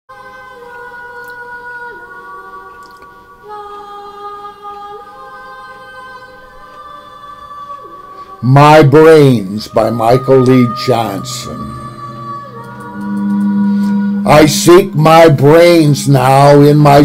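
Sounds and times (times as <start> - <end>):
slow choir-like chords: 0.1 - 17.0.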